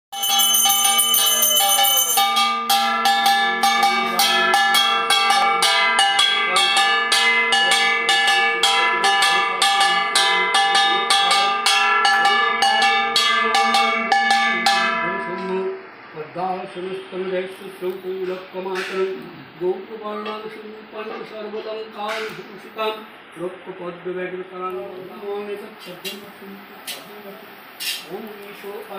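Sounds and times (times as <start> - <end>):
bell ringing: 0.1 - 15.9.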